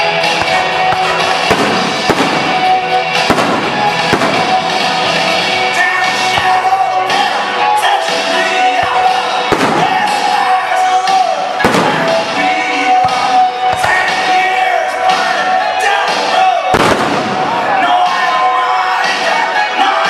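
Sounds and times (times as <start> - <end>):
loud music playing: 0.0 - 20.0
fireworks bursting with sharp bangs: 0.3 - 5.5, 8.9 - 10.5, 11.6 - 14.1, 16.7 - 17.6.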